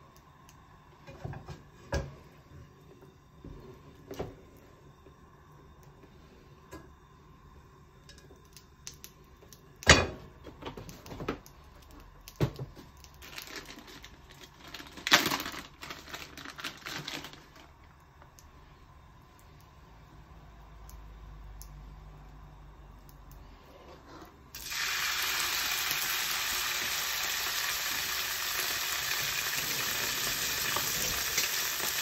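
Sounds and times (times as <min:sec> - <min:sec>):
plastic bag crinkling: 0:13.1 - 0:17.8.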